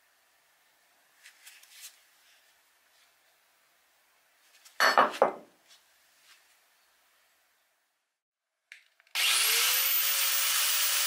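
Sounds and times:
faint room hiss: 0:00.0 - 0:04.8, 0:05.4 - 0:08.2.

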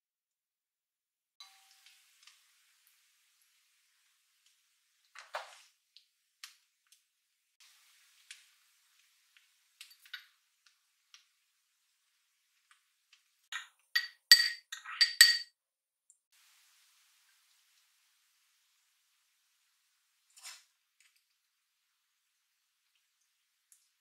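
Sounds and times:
ceramic spoon clinking on bowl: 0:13.5 - 0:15.5.

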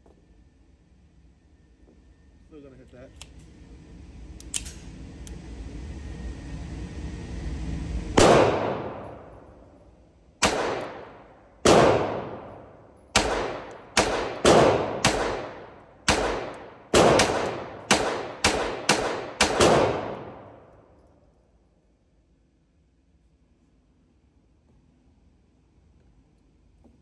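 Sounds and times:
pistol shots echoing indoors: 0:08.2 - 0:09.7, 0:10.4 - 0:21.0.

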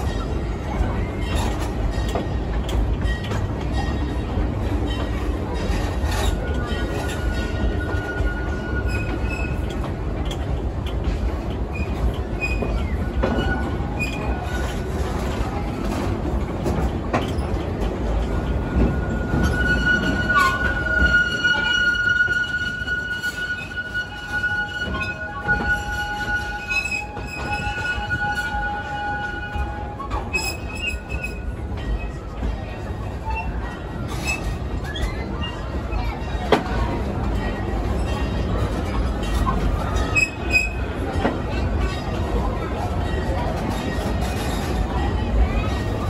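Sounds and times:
train coaches rumbling on rails: 0:00.0 - 0:46.0
high wheel squeal: 0:18.6 - 0:32.2.

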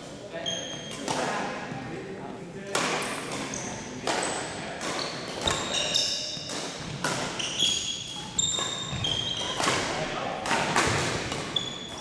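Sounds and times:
sneakers squeaking on gym floor: 0:00.3 - 0:01.1, 0:03.0 - 0:10.0, 0:10.6 - 0:12.0
racket hitting shuttlecock: 0:02.7 - 0:12.0.

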